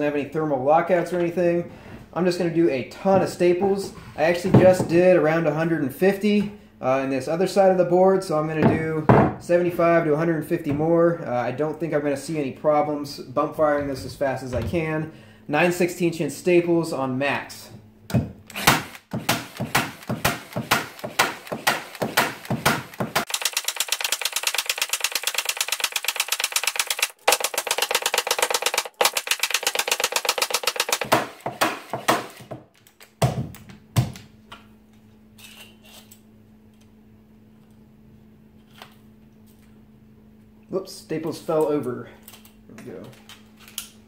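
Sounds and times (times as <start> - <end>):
stapler firing staples into wood: 18.5 - 32.6.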